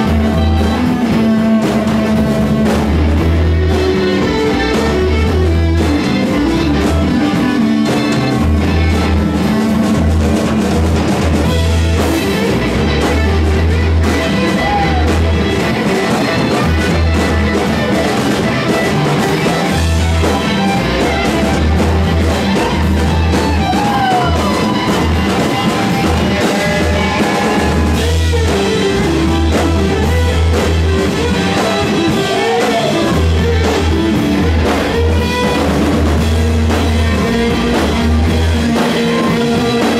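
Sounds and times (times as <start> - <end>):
drum kit: 0.0 - 39.9
electric guitar: 0.0 - 39.9
heavy bass line: 0.0 - 39.9
person singing: 12.5 - 16.7, 22.2 - 35.6, 36.6 - 39.9.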